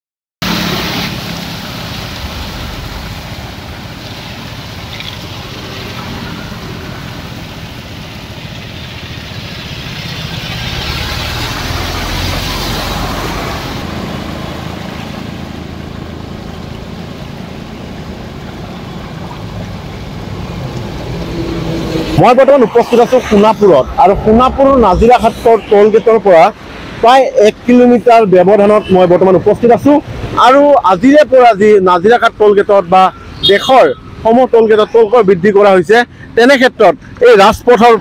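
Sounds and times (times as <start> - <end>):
car engines running: 0.4 - 38.0
tyres washing through water: 0.4 - 38.0.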